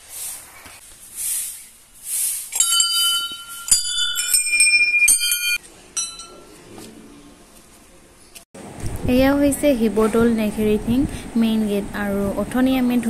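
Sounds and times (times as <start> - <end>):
brass temple bells ringing: 2.6 - 6.6.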